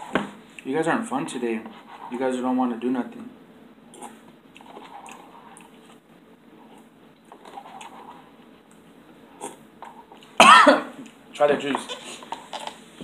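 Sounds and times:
faint chewing of noodles: 0:03.9 - 0:10.4.

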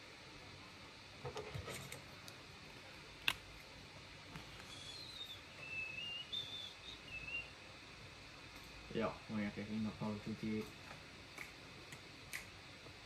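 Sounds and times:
faint high whistle-like notes: 0:04.7 - 0:07.5.

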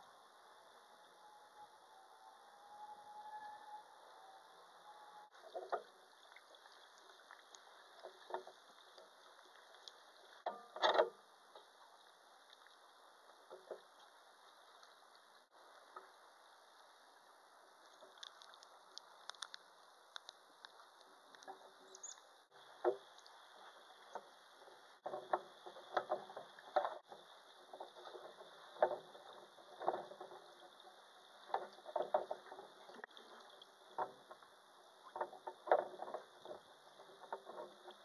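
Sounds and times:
small clicks: 0:17.8 - 0:22.3.

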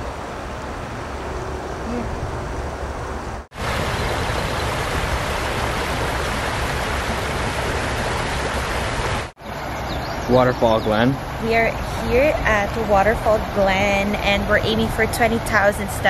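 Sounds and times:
creek water rushing over rocks: 0:03.5 - 0:09.4.

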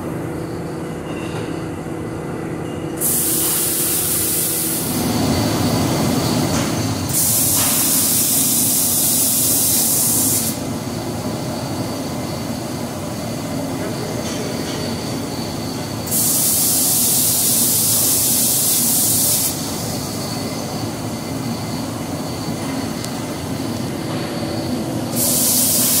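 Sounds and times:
steady machine noise: 0:00.0 - 0:26.0
spray guns air hiss: 0:03.0 - 0:05.1, 0:06.6 - 0:10.7, 0:16.0 - 0:20.3, 0:25.1 - 0:26.0.

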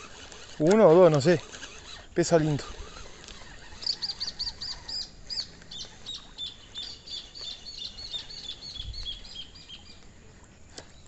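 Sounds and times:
bird calling: 0:00.0 - 0:11.0.

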